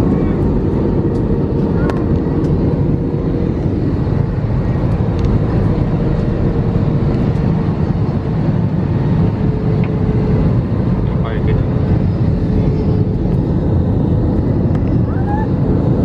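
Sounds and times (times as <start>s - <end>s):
jet cabin roar: 0.0s - 16.0s.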